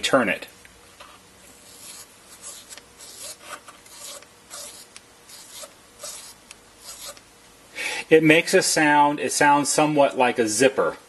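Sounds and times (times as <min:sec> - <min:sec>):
potentiometer scratching: 0:01.5 - 0:07.3.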